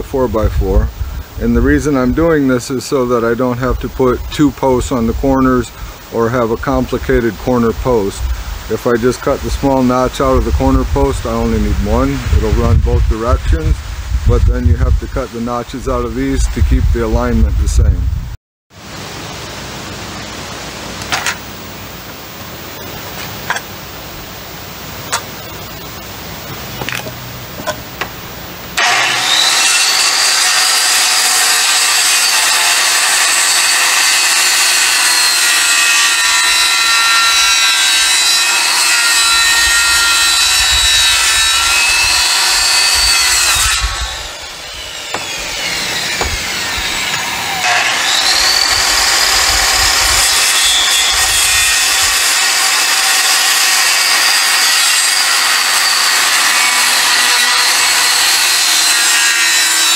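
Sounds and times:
circular saw cutting wood: 1.5 - 13.8, 28.8 - 59.9.

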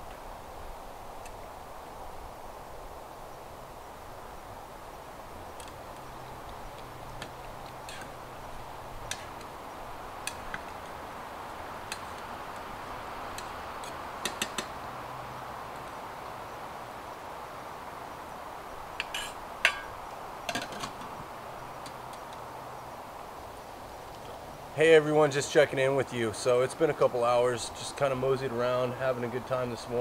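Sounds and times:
river water rushing: 0.0 - 24.8
sharp clicks and light knocks: 10.2 - 11.0, 13.3 - 14.8.

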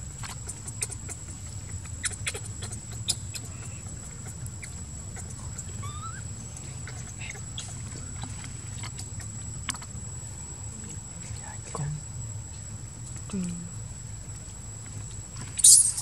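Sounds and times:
baby monkey squeaking: 0.2 - 9.9, 15.6 - 16.0
high-pitched whine: 15.6 - 16.0.

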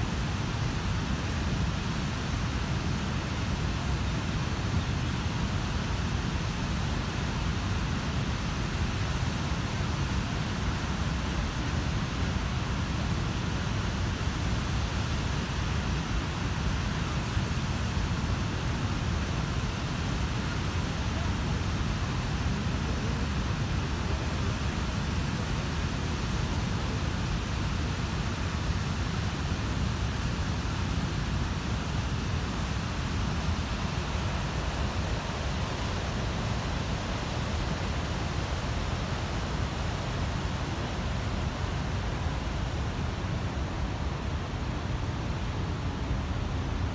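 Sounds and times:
river churning: 12.7 - 46.9
waterfall rushing: 15.5 - 46.9.

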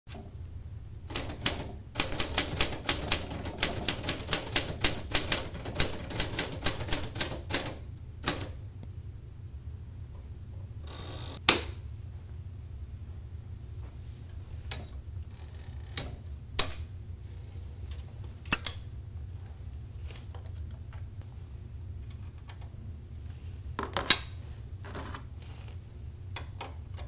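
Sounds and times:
typewriter keys clacking: 1.1 - 8.6.

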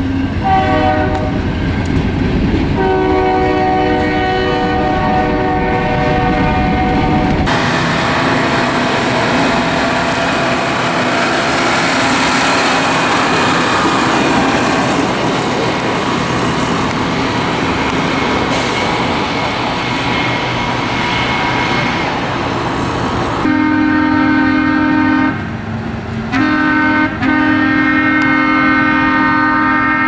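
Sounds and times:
rail machines engine and wheel noise: 0.0 - 30.0
air horn blasts: 0.4 - 1.4, 2.8 - 8.9, 23.4 - 25.4, 26.3 - 30.0.

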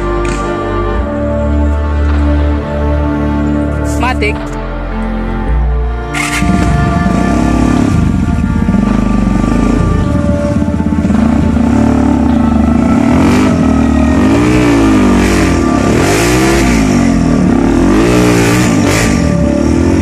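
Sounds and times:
dirt bike engine revving: 6.1 - 20.0.

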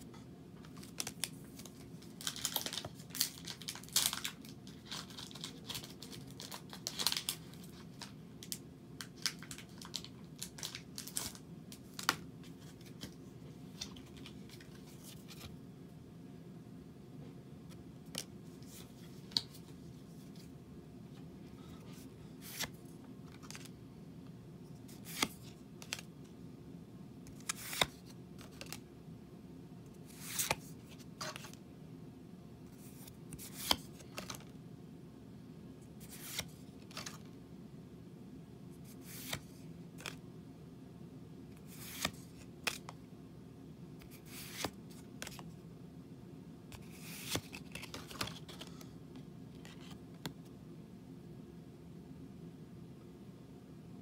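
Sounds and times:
steady low hum: 11.3 - 54.0
cards sliding and flicking: 22.0 - 23.7, 24.9 - 26.1, 27.3 - 28.8, 30.0 - 31.6, 32.8 - 34.4, 36.0 - 37.3, 38.8 - 40.2, 41.6 - 42.9, 44.0 - 45.4, 46.7 - 48.8.

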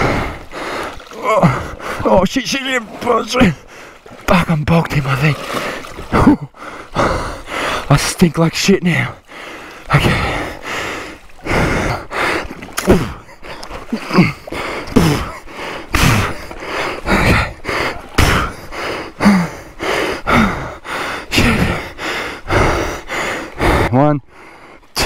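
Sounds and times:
men breathing hard: 0.0 - 2.1, 5.4 - 7.9, 9.2 - 24.9
grunts of effort: 1.1 - 2.2, 6.1 - 7.4, 11.4 - 23.0.

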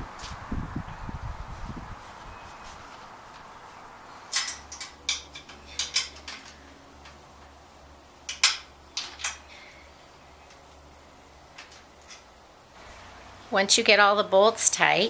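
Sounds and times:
metal wrench clinking on bolts: 4.3 - 7.2.

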